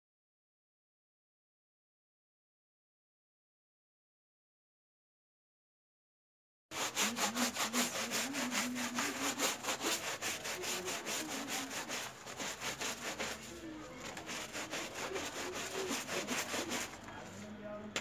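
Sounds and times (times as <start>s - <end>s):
brush scrubbing wet doormat: 6.7s - 17.4s.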